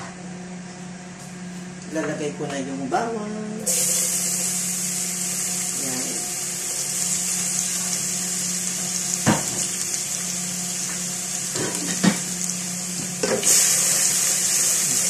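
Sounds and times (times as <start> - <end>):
garlic sizzling in hot oil: 3.7 - 15.0.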